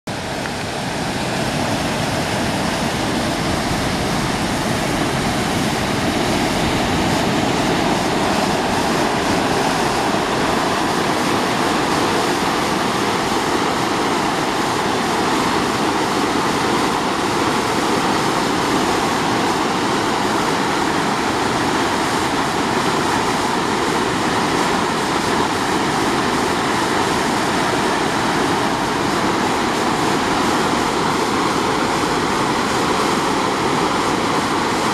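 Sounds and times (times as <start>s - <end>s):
water gushing: 0.1s - 34.9s.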